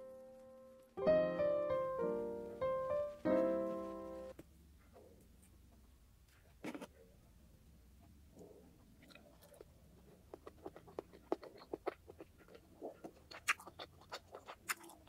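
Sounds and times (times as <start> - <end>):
chewing with wet clicks: 8.4 - 15.0.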